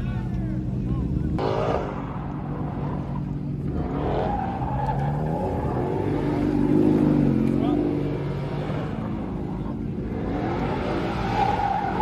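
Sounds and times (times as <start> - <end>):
car engine revving: 1.2 - 12.0
tires squealing on asphalt: 1.4 - 12.0.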